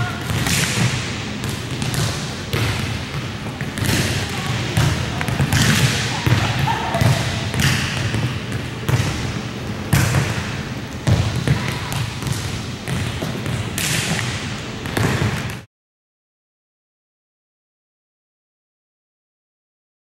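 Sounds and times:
volleyballs smacking gym floor: 0.0s - 15.7s.

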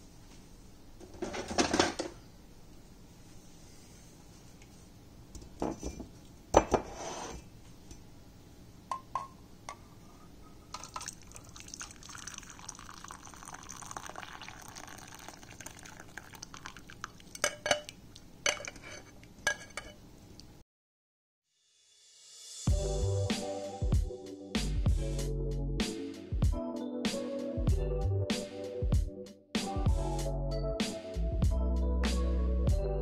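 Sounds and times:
liquid pouring into mug: 10.7s - 18.0s
metal strainer clinking on mug: 17.3s - 17.9s, 18.5s - 20.0s.

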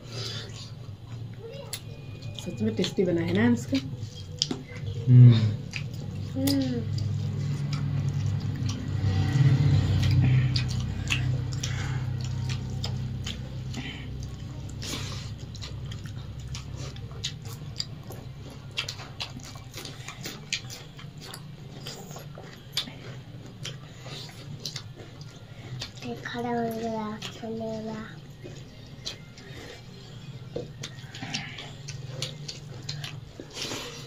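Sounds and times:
chewing and lip-smacking: 0.0s - 34.0s
low hum: 0.0s - 34.0s.

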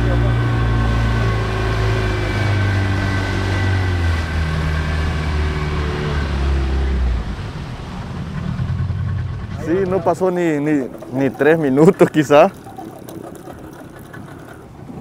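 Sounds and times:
outboard motor running: 0.0s - 15.0s
water rushing: 0.0s - 15.0s
wind rushing: 7.0s - 12.7s.

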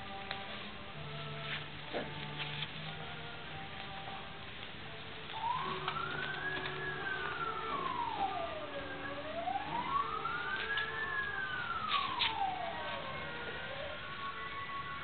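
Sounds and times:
siren wailing: 5.3s - 15.0s.

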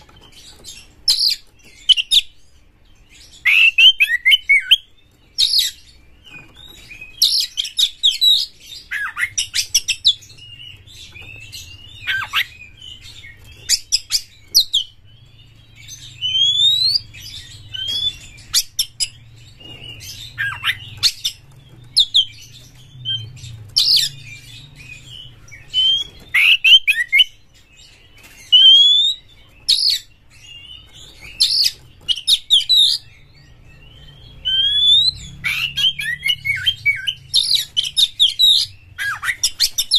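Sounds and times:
bird singing whistled phrases: 16.2s - 18.2s, 28.5s - 30.0s, 34.0s - 39.9s.

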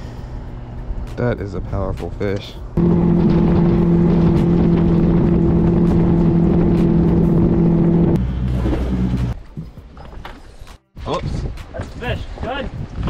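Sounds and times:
outboard motor drone: 2.8s - 9.4s.

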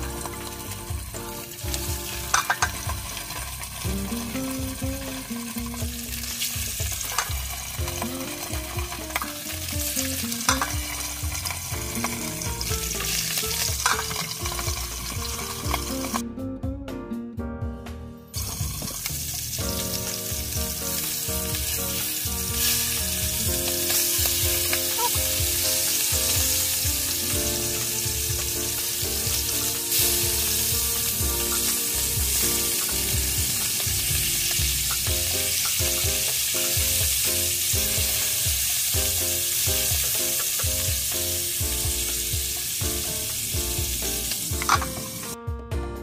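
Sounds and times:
fish sizzling in hot oil: 0.0s - 16.2s, 18.3s - 45.4s
metal lid clanking on pan: 2.3s - 2.9s, 7.1s - 7.4s, 10.5s - 11.0s, 13.6s - 14.4s, 44.6s - 45.1s.

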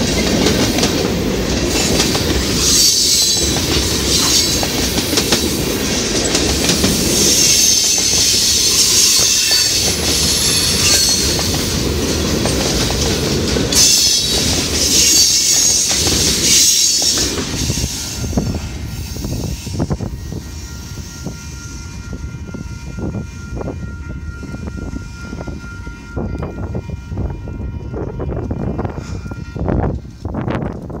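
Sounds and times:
wheels clacking over rail joints: 0.0s - 18.1s
train wheels squealing: 1.7s - 11.7s, 13.7s - 26.7s.

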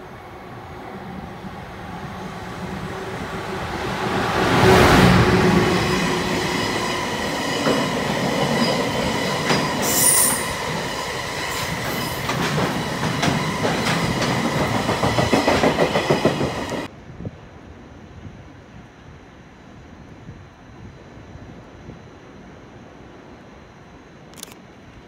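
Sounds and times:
train wheels rumbling on rail: 0.0s - 16.9s.

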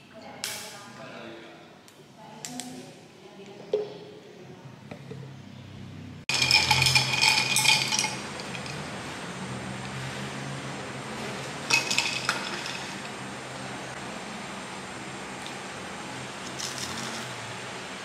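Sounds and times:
drinking glass clinking: 6.3s - 8.9s, 11.7s - 13.0s.

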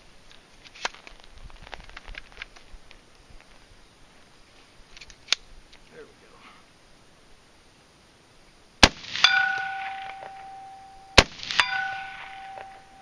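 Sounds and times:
rifle shots: 8.8s - 12.9s
bullet clanging on steel target: 9.2s - 13.0s.

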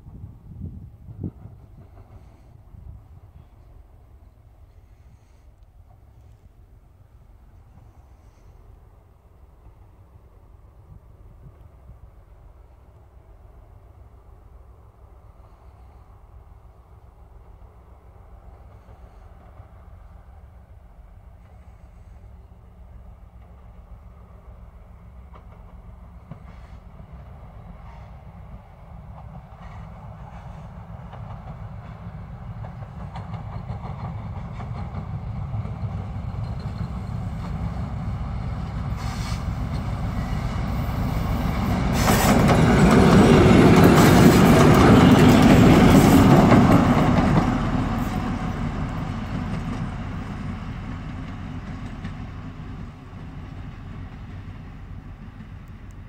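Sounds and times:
diesel locomotive passing: 0.0s - 56.0s.

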